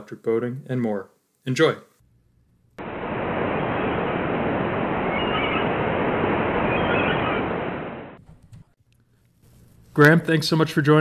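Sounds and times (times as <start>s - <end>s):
ocean waves washing: 2.8s - 8.2s.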